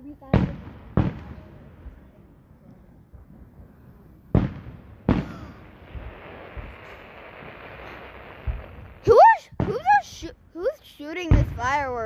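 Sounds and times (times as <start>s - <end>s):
fireworks bursting: 0.0s - 2.4s, 3.0s - 12.0s
crackling hiss: 3.6s - 10.2s
distant pops: 4.3s - 10.0s.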